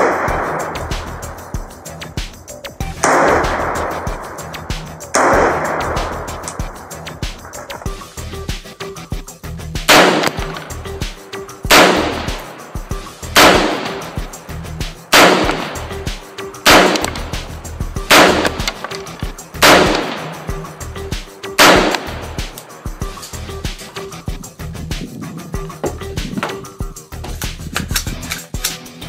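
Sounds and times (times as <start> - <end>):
rifle gunshots: 0.0 - 1.2, 3.0 - 4.2, 5.2 - 6.7, 9.9 - 10.8, 11.7 - 14.3, 15.1 - 20.8, 21.6 - 22.6.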